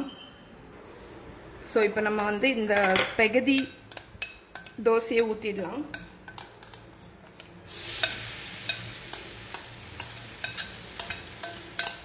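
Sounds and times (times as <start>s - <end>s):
batter sizzling on hot pan: 7.7s - 12.0s.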